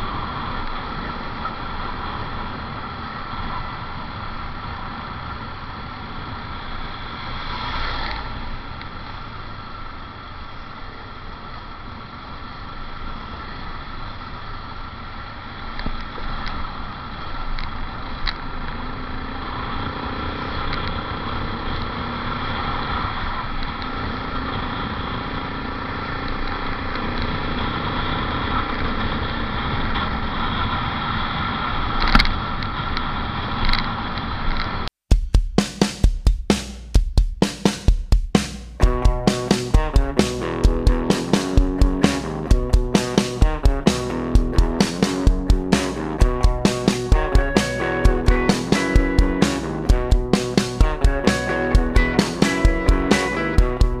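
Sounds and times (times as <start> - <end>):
road noise: 0.0 - 34.9, 36.6 - 54.0
motorcycle engine running: 35.1 - 54.0.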